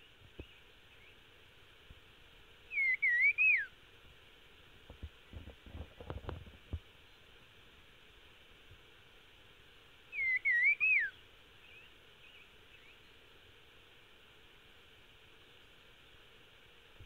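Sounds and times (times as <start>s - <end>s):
songbird whistling: 2.7s - 3.7s, 10.1s - 13.1s.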